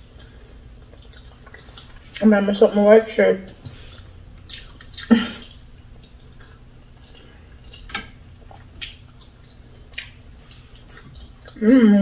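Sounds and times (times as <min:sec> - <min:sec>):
soft eating sounds: 0:00.0 - 0:12.0.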